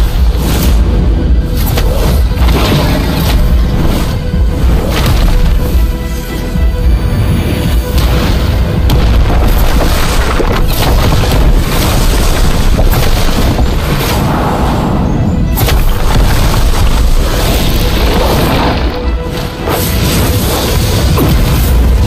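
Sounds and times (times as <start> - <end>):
dramatic background music: 0.0 - 22.0
heavy booms and blast impacts: 7.6 - 22.0.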